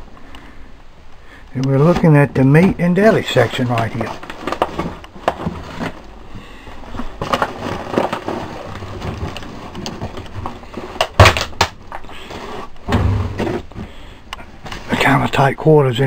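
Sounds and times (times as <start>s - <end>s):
footsteps crunching over debris: 1.8s - 12.7s.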